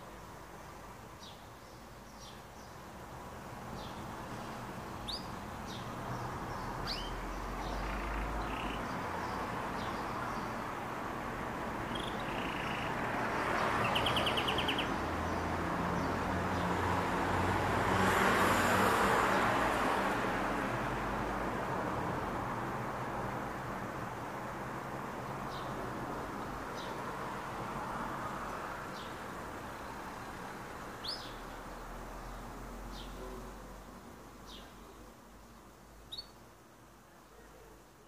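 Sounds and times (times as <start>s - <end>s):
street traffic noise: 0.0s - 38.0s
canary chirping and trilling: 5.0s - 5.9s, 6.6s - 8.9s, 11.9s - 13.0s, 13.7s - 15.0s, 31.0s - 31.4s, 36.1s - 36.4s.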